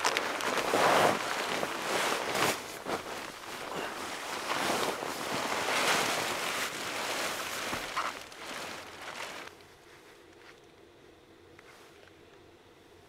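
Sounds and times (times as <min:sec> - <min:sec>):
nylon fabric rustling: 0:00.0 - 0:09.5.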